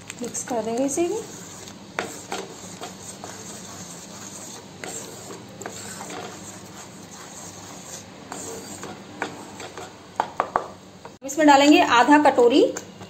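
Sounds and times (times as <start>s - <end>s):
wooden spatula scraping and squelching: 0.2s - 10.0s.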